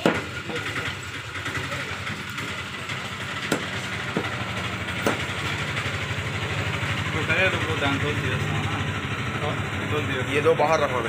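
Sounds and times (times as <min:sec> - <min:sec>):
knife chopping on wooden block: 0:00.0 - 0:00.3, 0:03.4 - 0:04.4, 0:05.0 - 0:05.4
engine hum: 0:00.0 - 0:11.0.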